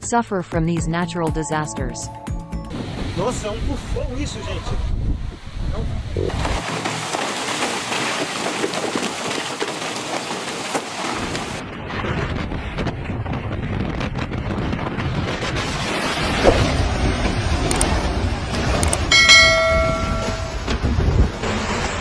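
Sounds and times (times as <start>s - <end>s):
wind buffeting microphone: 2.7s - 6.3s, 11.6s - 21.4s.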